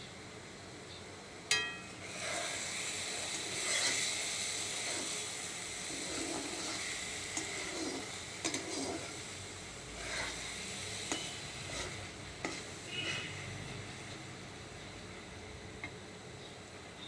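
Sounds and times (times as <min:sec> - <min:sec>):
metal spatula clinking on iron pan: 0:01.5 - 0:02.0
spatula scraping and stirring pan: 0:01.5 - 0:14.3
paste sizzling in hot oil: 0:01.8 - 0:14.5.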